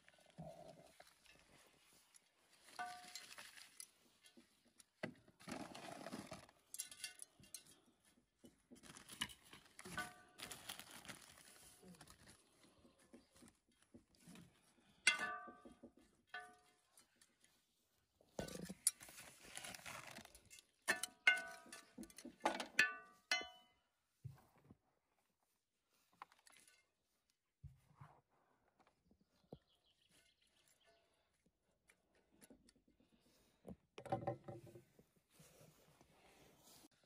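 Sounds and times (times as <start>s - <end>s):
trowel clinking on iron bowl: 15.1s - 15.8s, 20.9s - 23.7s.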